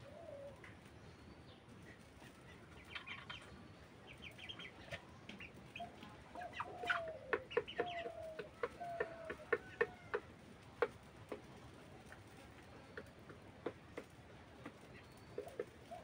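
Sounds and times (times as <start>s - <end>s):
chickens clucking quickly: 1.7s - 16.0s
chicken drawn-out falling call: 6.4s - 10.4s.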